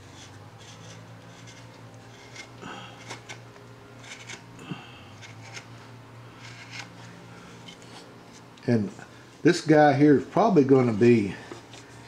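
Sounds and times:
carving tool scraping wood: 0.0 - 4.5, 5.1 - 8.5.

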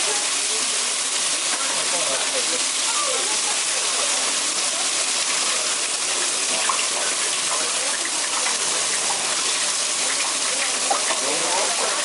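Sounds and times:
fish sizzling on a grill: 0.0 - 12.0.

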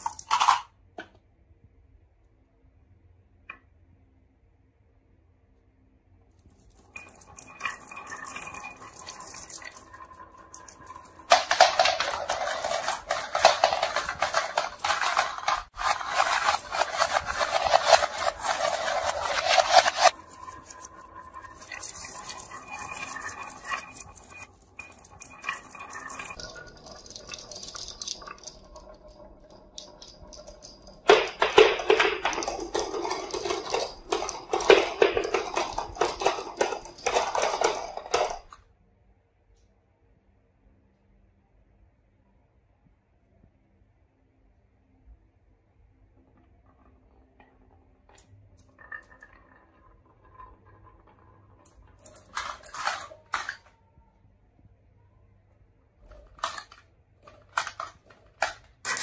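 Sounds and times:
marbles running through plastic chute: 0.0 - 0.7, 6.4 - 38.6, 46.6 - 53.8, 56.0 - 59.0
marbles clattering on wooden track: 0.0 - 1.1, 6.4 - 38.6, 46.2 - 53.8, 56.0 - 59.0.

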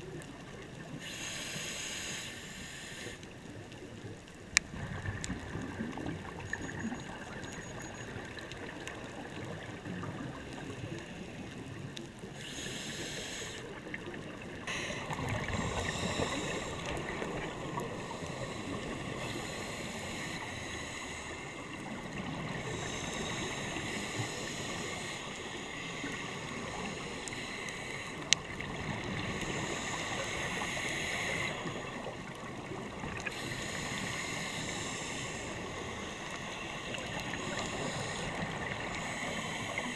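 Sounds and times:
murky underwater noise: 0.0 - 39.9
exhaled bubbles bubbling: 4.6 - 11.0, 13.8 - 19.6.

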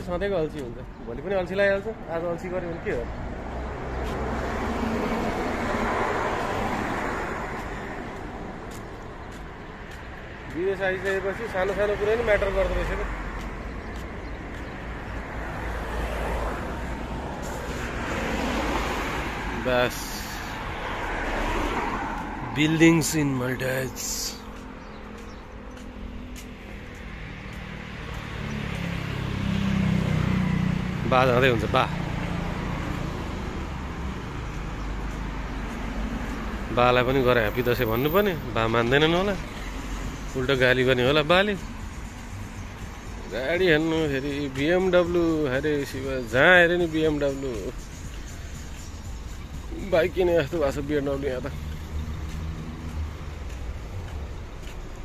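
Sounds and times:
street traffic: 0.0 - 55.0
vehicle passing close by: 2.5 - 8.8, 11.6 - 41.5.

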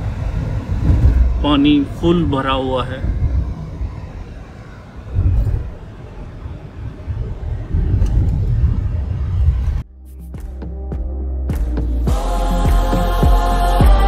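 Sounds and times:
vehicle road and wind noise: 0.0 - 9.9.

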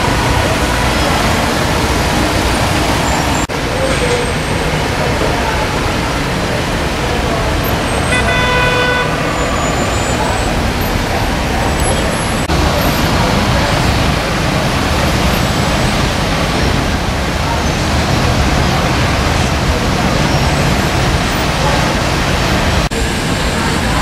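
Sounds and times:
cars and motorbikes passing: 0.0 - 24.0
car horn: 7.8 - 10.8.

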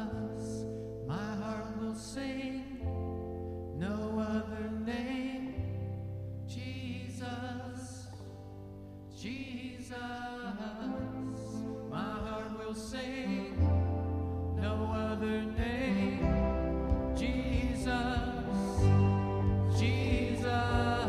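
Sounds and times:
person singing: 0.0 - 3.1, 9.2 - 21.0
keyboard: 0.0 - 21.0
low bass notes: 13.6 - 21.0.

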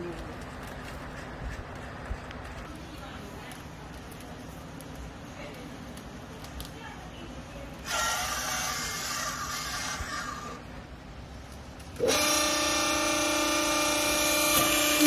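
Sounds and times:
hydraulic motor and pump humming: 7.7 - 15.0
hiss: 7.8 - 10.6.

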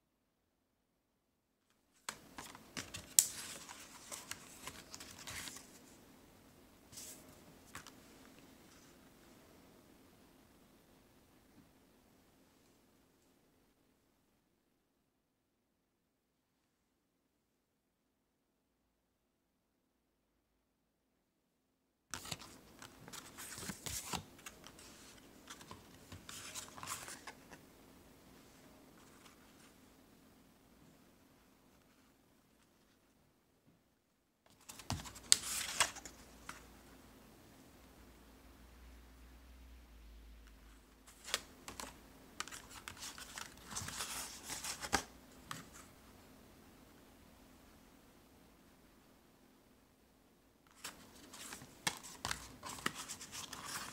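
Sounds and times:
paper prints rustling and scraping: 2.0 - 6.0, 6.9 - 8.0, 22.1 - 27.6, 41.1 - 45.9, 50.7 - 53.9.

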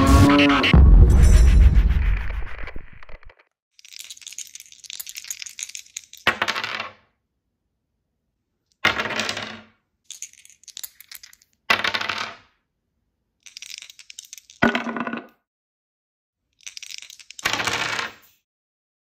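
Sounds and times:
dice clattering on board: 3.8 - 7.1, 8.7 - 12.6, 13.4 - 15.4, 16.6 - 18.4
dice rattling in a cup: 3.8 - 7.1, 8.7 - 12.6, 13.4 - 15.2, 16.5 - 18.4.

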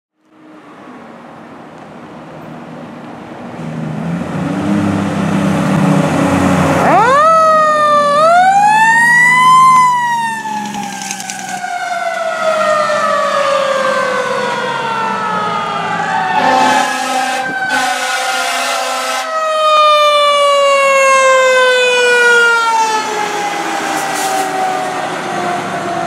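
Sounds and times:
fire engine diesel rumbling: 1.0 - 26.0
fire engine siren wailing: 4.6 - 26.0.

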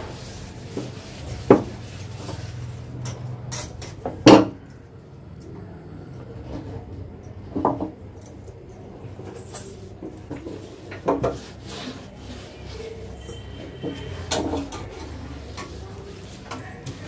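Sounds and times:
hands scrubbing metal stove: 0.0 - 2.9, 9.6 - 17.0.

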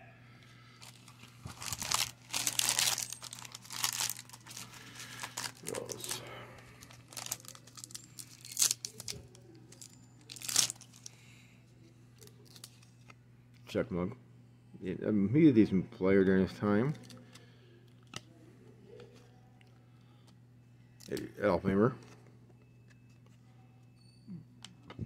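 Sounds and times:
foil wrapper crinkling and tearing: 0.8 - 11.1.

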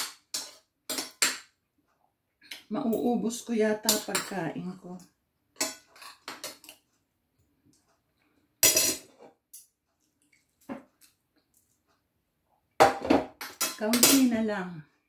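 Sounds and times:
cutlery clinking on a plate: 0.0 - 1.5, 8.6 - 9.7.

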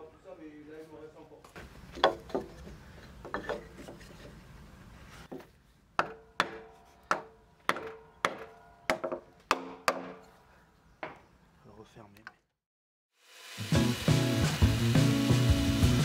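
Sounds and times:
wooden mallet knocking wedge: 6.0 - 10.3.

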